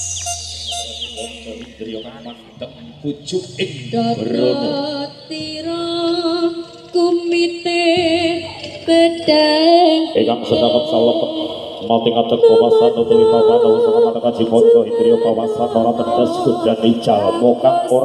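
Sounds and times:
backing music: 0.0 - 18.0
woman singing with vibrato: 3.8 - 18.0.

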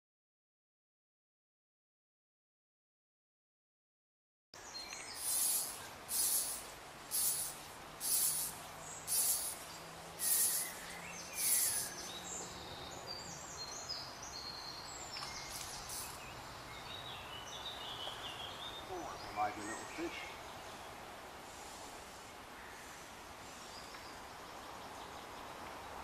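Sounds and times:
steady background hiss: 4.6 - 26.0
high chirps: 5.0 - 12.0, 15.5 - 16.2
high hissing buzzes: 5.0 - 12.1, 15.4 - 16.2.

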